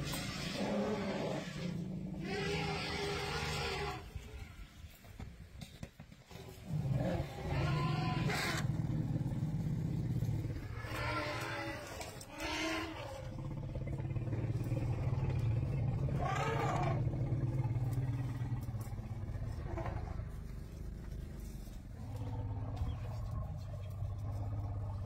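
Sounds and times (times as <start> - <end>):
elephants calling: 0.0 - 4.8, 6.7 - 25.0
steady low drone: 6.6 - 25.0.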